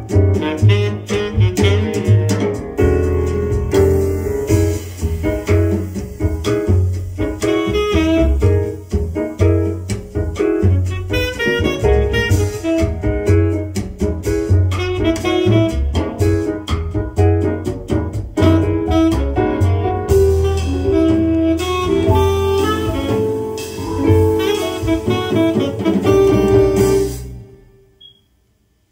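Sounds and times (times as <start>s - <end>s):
saxophone jazz over loudspeakers: 0.0s - 2.6s, 7.2s - 8.8s, 10.6s - 13.7s, 14.7s - 16.5s, 18.4s - 27.5s.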